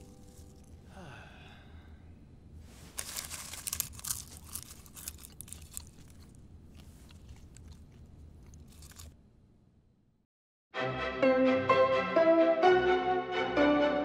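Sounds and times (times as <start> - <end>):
popcorn being crunched and chewed: 2.8 - 9.2.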